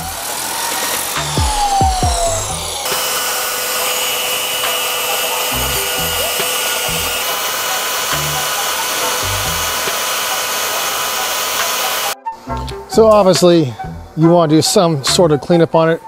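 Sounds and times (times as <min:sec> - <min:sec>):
background music with bass line: 0:00.0 - 0:02.8, 0:05.4 - 0:07.3, 0:08.2 - 0:09.8, 0:12.2 - 0:14.4
power tool whirring: 0:00.0 - 0:12.5.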